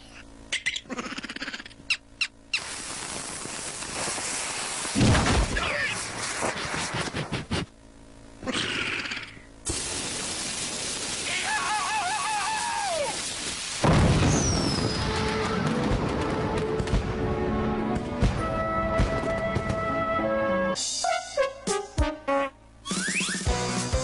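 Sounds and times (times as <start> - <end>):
steady hiss: 2.5 - 7.9, 8.8 - 15.0
firecracker explosion: 2.6 - 7.7, 9.7 - 17.5
warbling cartoon cry: 8.4 - 9.4, 11.2 - 13.2
crackling and falling whistle: 10.1 - 16.7, 22.8 - 23.5
music: 15.1 - 24.0.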